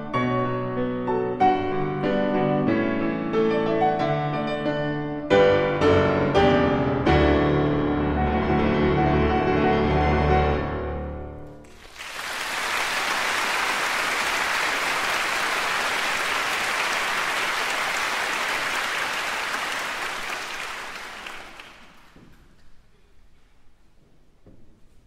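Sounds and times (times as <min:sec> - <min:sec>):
audience applause: 0:11.6 - 0:22.3.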